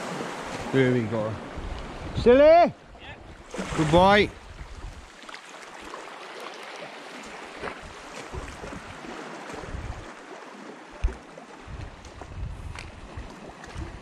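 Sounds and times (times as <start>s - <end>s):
surf washing on shore: 0.0s - 14.0s
wind on microphone: 3.1s - 5.1s, 7.6s - 10.2s, 11.0s - 14.0s.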